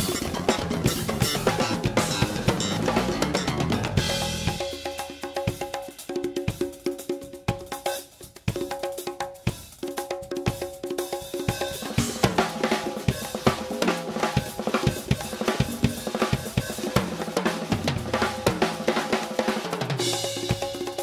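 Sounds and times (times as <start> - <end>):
backing track with bass line: 0.0 - 4.8
acoustic drum kit played fast: 0.0 - 21.0.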